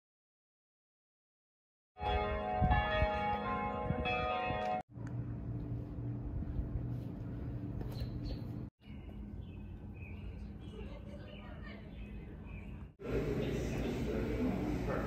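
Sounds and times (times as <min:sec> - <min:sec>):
bells ringing: 0:02.0 - 0:04.8
steady low hum: 0:04.9 - 0:15.0.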